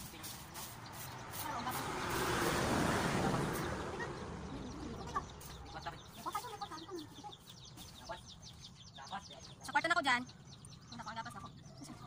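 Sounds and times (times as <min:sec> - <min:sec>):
broad rushing noise: 0:00.0 - 0:05.4
birds chirping and clucking: 0:00.0 - 0:12.0.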